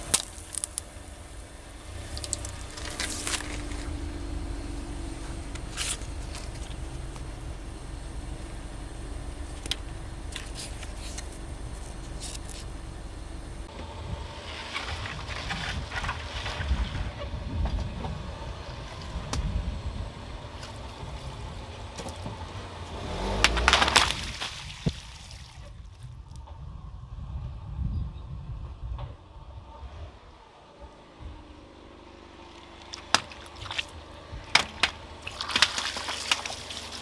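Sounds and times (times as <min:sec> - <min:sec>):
car tyre rolling: 0:00.0 - 0:27.8, 0:28.8 - 0:37.0
water balloons bursting: 0:32.9 - 0:37.0.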